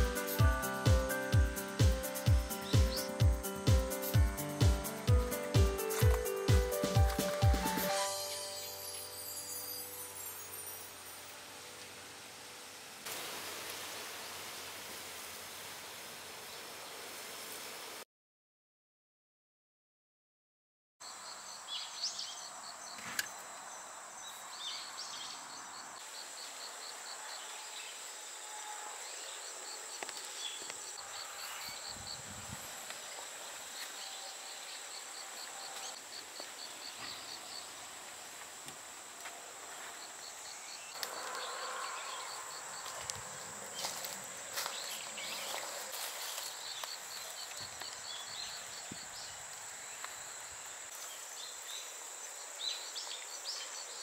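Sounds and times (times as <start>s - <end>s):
insects high-pitched buzz: 0.0s - 15.3s, 21.0s - 54.0s
insects chirping fast: 40.0s - 54.0s.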